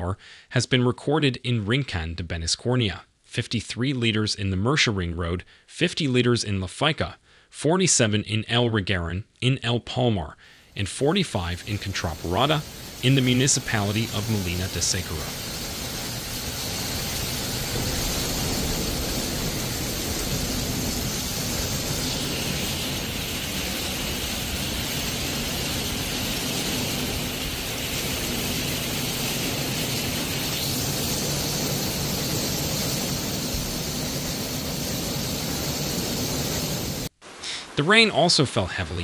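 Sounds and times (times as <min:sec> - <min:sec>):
torrential rain pouring: 0:11.0 - 0:37.1.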